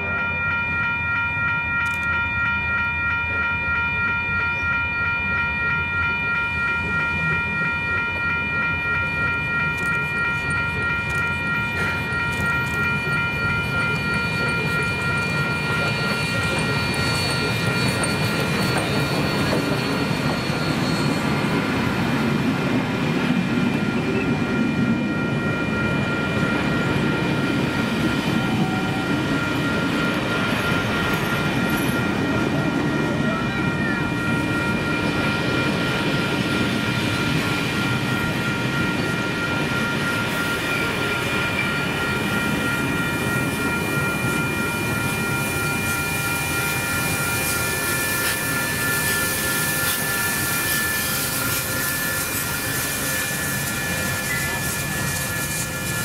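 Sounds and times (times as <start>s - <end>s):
steady high tone: 0.0s - 56.0s
train rumble: 0.0s - 56.0s.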